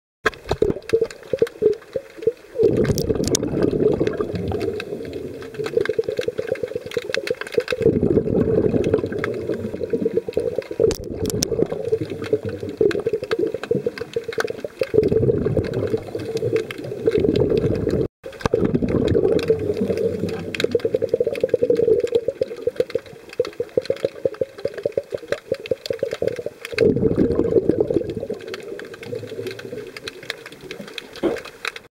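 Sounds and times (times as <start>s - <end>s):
underwater churning rush: 0.3s - 31.9s.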